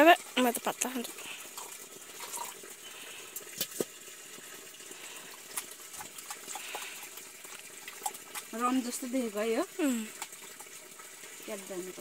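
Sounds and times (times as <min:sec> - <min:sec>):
tea trickling into cup: 0:00.4 - 0:11.6.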